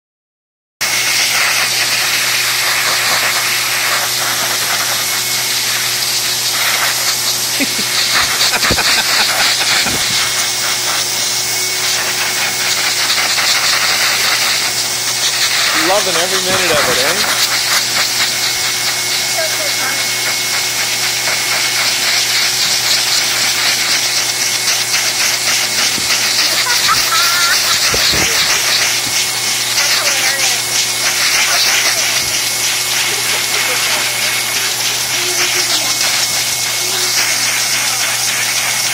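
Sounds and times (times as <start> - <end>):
blow dryer rushing air: 0.8 - 38.9.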